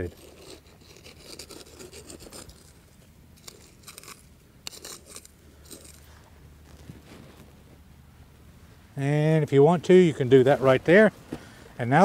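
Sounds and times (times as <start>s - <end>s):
trowel scraping dry soil: 0.0s - 7.5s.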